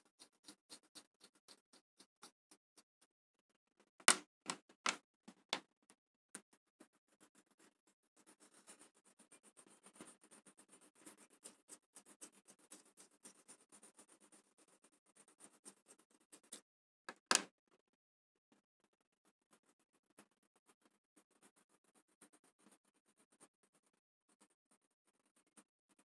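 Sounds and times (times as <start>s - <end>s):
scratchy strokes on paper: 0.0s - 2.6s, 6.5s - 16.6s, 18.8s - 26.0s
drawing tool tapping on paper: 4.0s - 5.6s, 17.1s - 17.5s.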